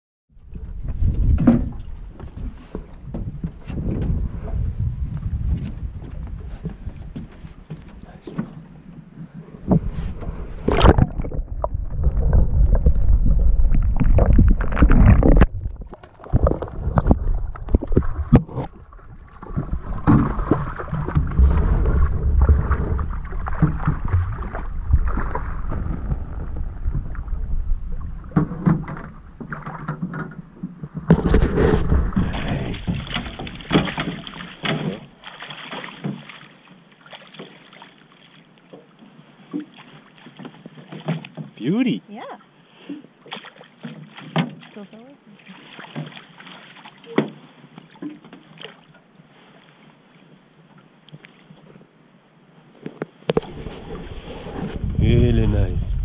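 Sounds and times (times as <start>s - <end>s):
water splashing and sloshing: 0.3s - 52.0s, 52.6s - 56.0s.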